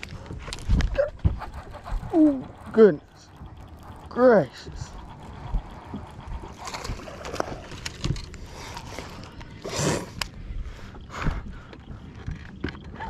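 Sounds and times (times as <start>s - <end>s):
fishing reel clicks and knocks: 2.5s - 10.4s.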